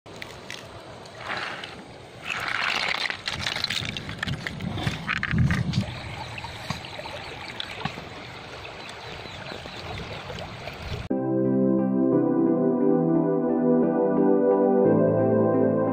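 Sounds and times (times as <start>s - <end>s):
shallow stream rushing: 0.4s - 11.1s.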